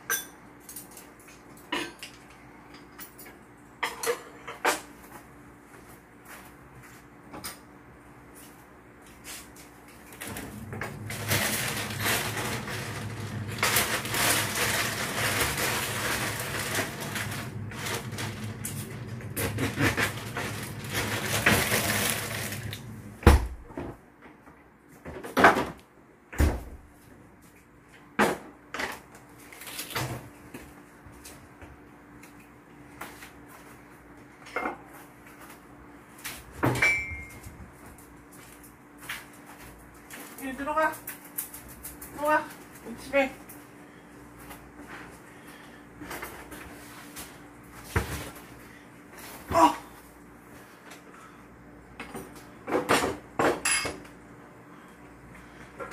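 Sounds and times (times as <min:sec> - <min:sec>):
dishes and utensils clinking: 0:00.0 - 0:04.9, 0:36.7 - 0:37.4.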